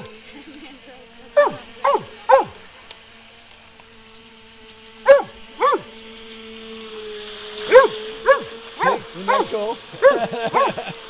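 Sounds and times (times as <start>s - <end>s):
electric motor whine: 0.0s - 11.0s
dog barking: 1.4s - 2.5s, 5.1s - 5.9s, 7.7s - 10.8s.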